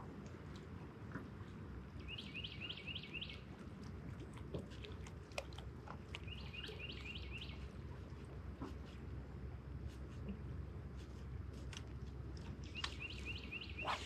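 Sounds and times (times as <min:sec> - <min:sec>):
songbird singing: 0:02.0 - 0:03.6, 0:06.0 - 0:08.0, 0:12.4 - 0:14.0.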